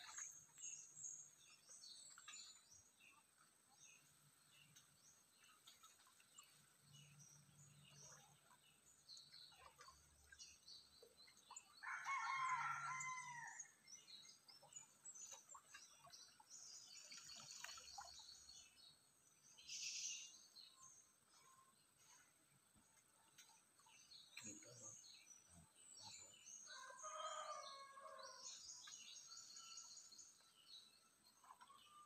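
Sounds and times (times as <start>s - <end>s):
small birds chirping: 13.9s - 27.6s.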